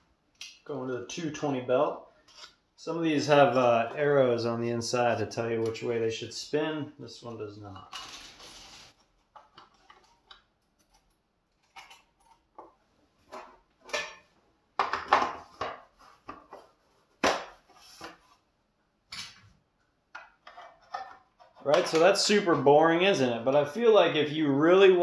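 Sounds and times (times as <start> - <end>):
rustling: 8.0 - 9.2.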